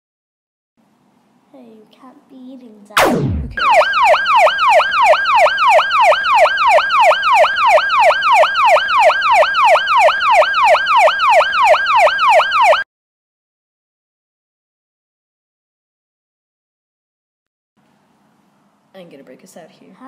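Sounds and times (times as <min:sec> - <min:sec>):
siren falling wail: 0:03.0 - 0:12.9.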